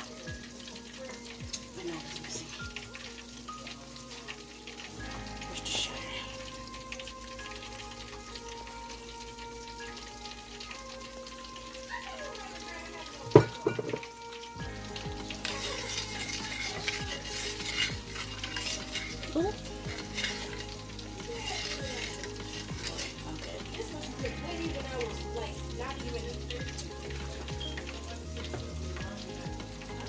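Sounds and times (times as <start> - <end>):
sauce sizzling and crackling: 0.0 - 30.0
spoon stirring with scrapes: 14.8 - 25.8.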